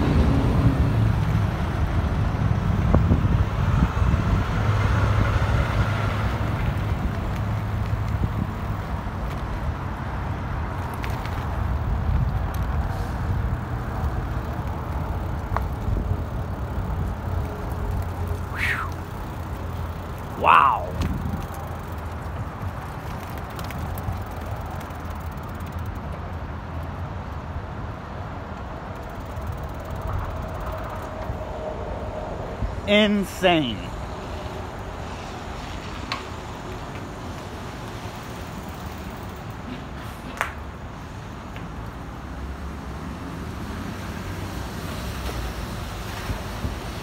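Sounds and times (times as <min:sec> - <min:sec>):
distant traffic: 0:00.0 - 0:47.0
wind on microphone: 0:20.4 - 0:21.5.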